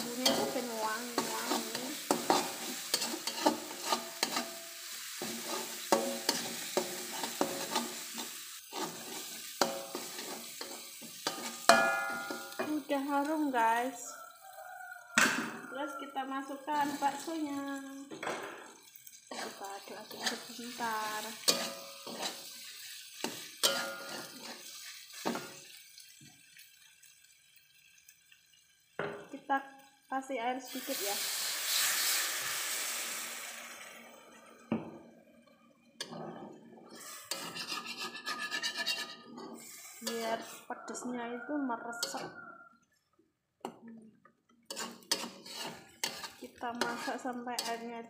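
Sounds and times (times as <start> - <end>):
metal spatula scraping a wok: 0.0 - 13.0, 16.7 - 17.3, 19.3 - 25.7, 36.0 - 41.0, 42.0 - 42.4, 44.7 - 47.9
spice paste sizzling in oil: 0.0 - 34.2, 36.9 - 41.1, 44.7 - 48.0.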